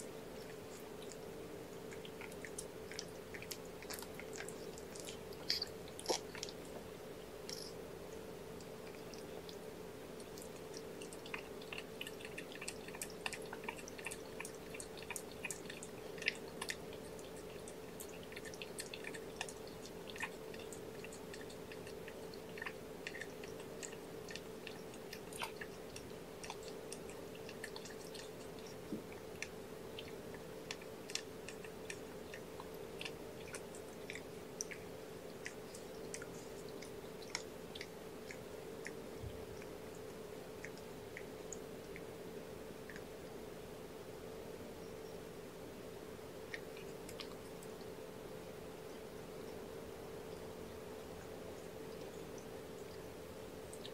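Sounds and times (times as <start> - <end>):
cat licking wet clicks: 10.2 - 42.1.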